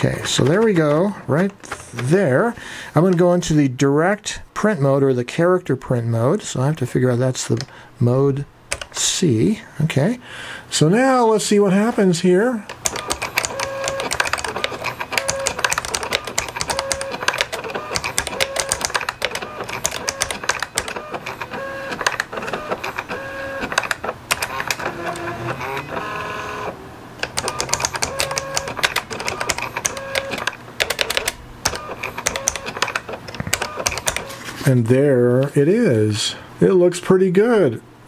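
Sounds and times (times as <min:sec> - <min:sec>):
typewriter key clicks: 0:12.7 - 0:21.0, 0:27.2 - 0:34.2
print head motor buzz: 0:12.8 - 0:30.5
carriage return motor whine: 0:12.8 - 0:34.4.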